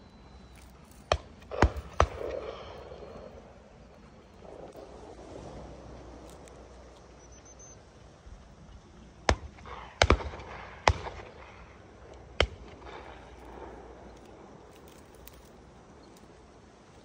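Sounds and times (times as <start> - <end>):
shotgun shots: 1.0 - 3.3, 9.3 - 14.1.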